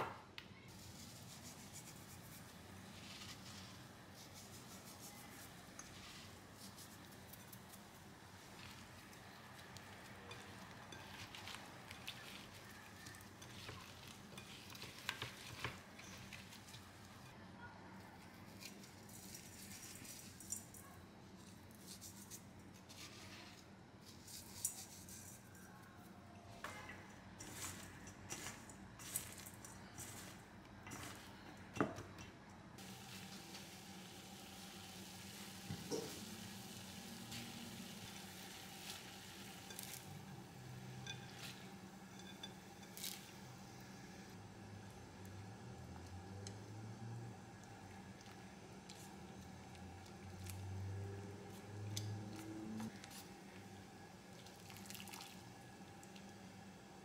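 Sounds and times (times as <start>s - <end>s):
salt grains pattering: 27.4s - 31.4s, 32.8s - 43.4s
boiling water bubbling: 54.1s - 56.4s.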